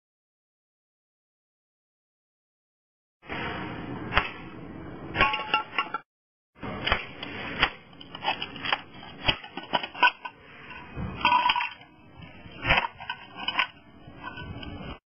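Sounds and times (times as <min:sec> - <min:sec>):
metal blade scraping tiles: 0:07.1 - 0:15.0.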